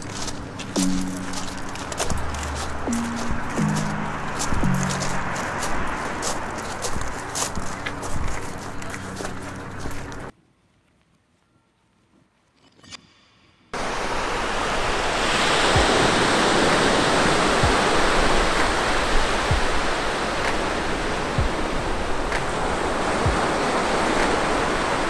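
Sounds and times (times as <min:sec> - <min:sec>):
ocean surf on a beach: 0:00.0 - 0:10.3, 0:13.8 - 0:25.0.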